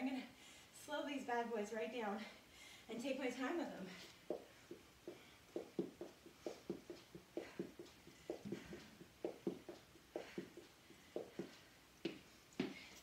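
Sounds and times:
sneakers thumping on exercise mat: 4.3s - 12.9s.

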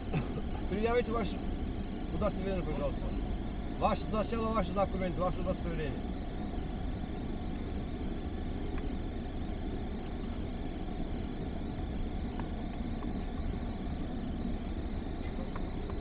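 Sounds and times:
car engine idling: 0.0s - 16.0s
faint clicks: 8.6s - 9.0s, 12.2s - 13.6s, 15.2s - 16.0s.

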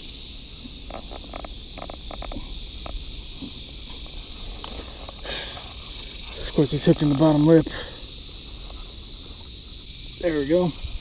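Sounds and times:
high insect hiss: 0.0s - 11.0s.

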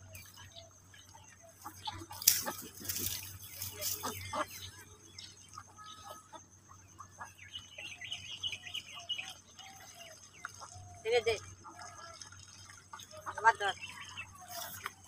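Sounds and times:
feet wading through shallow water: 0.0s - 15.0s
chicken clucking: 0.6s - 8.5s.

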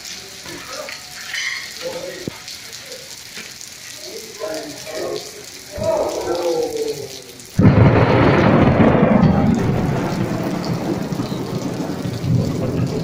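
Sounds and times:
heavy rain: 0.0s - 13.0s
thunderclap rumbling: 5.7s - 13.0s.

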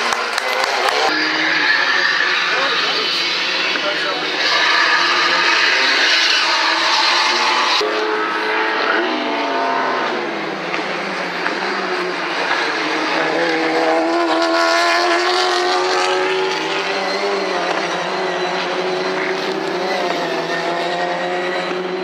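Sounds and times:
race car engines at high revs: 0.0s - 22.0s.

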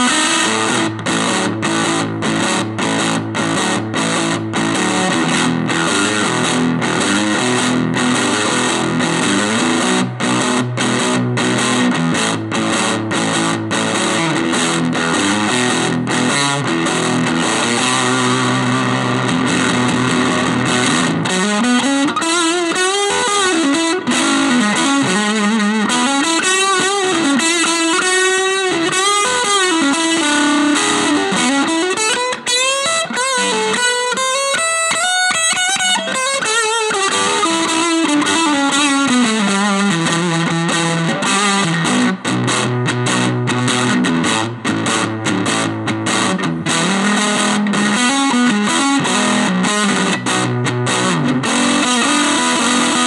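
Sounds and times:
electric guitar playing: 0.0s - 53.0s.

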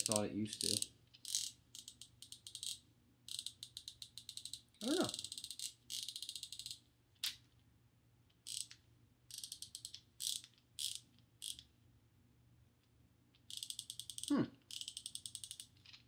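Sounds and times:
ratcheting screwdriver clicking: 0.0s - 6.8s, 8.5s - 11.6s, 13.4s - 16.0s.

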